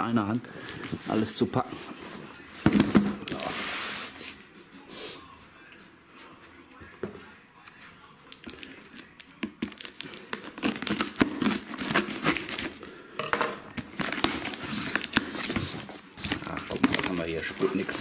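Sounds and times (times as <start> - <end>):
knife slitting packing tape: 9.6 - 12.8.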